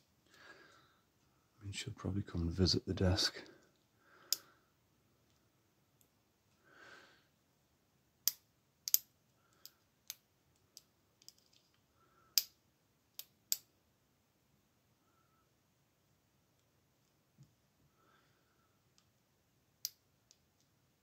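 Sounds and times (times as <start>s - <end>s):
soft breath: 0.3s - 1.5s, 6.5s - 7.4s, 15.0s - 15.6s, 17.8s - 18.9s
lock pick metallic clicks: 8.2s - 11.6s.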